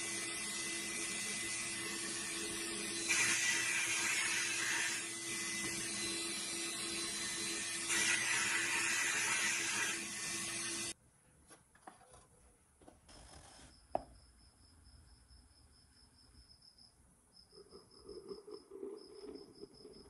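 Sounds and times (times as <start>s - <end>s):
plastic scoop scraping powder: 17.6s - 20.0s.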